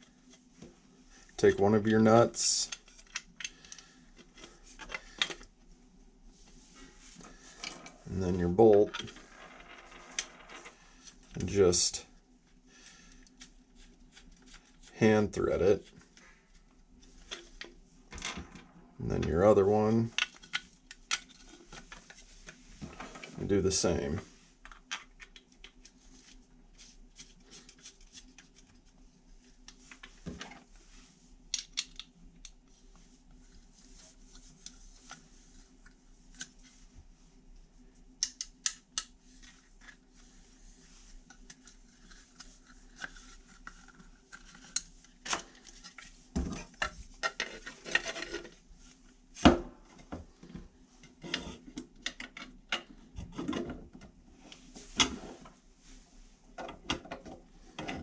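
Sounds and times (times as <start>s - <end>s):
faint steady hum: 0.0s - 58.0s.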